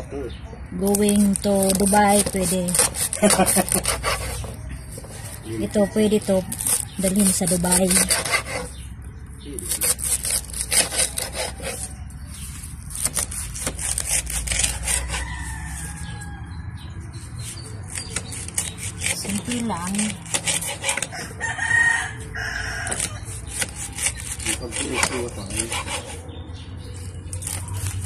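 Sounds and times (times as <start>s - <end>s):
rooster crowing: 5.1s - 7.0s, 14.8s - 17.0s, 21.0s - 23.3s.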